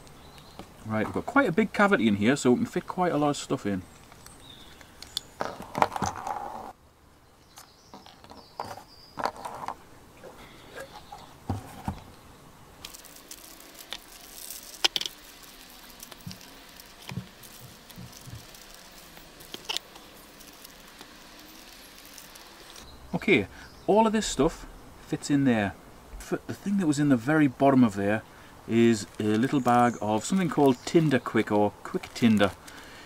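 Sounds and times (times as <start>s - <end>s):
plastic bags rustling: 12.9s - 22.8s, 28.7s - 33.0s
small objects tapping on cardboard: 16.0s - 20.0s.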